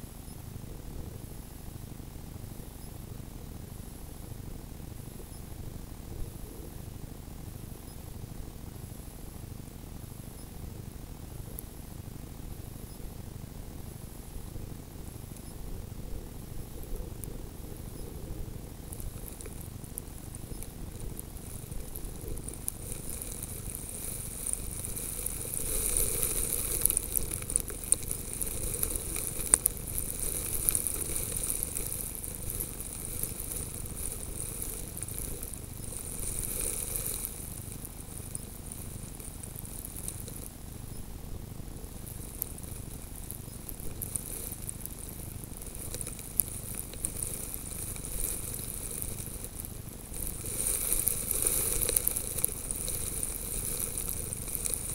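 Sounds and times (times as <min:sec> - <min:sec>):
snow grains pattering on camera: 0:12.7 - 0:54.9.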